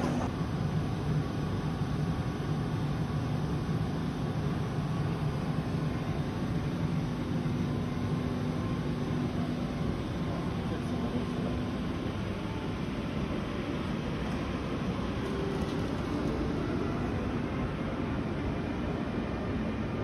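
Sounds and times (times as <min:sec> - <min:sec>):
train humming: 0:00.0 - 0:00.4, 0:08.1 - 0:20.0.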